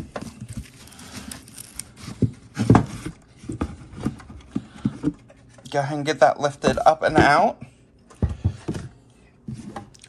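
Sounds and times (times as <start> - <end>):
rustling packaging: 0.0 - 5.8.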